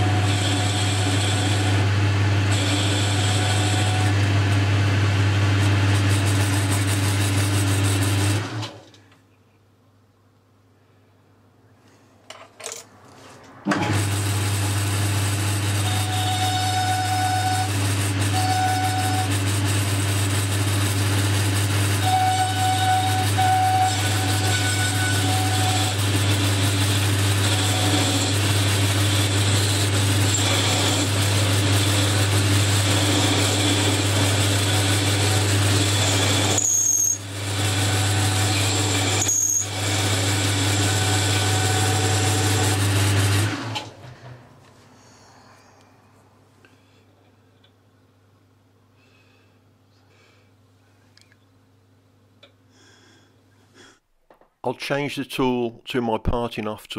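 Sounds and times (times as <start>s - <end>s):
lathe motor hum: 0.0s - 8.7s, 13.8s - 43.9s
cutting tool whine: 0.0s - 8.8s, 13.7s - 43.9s.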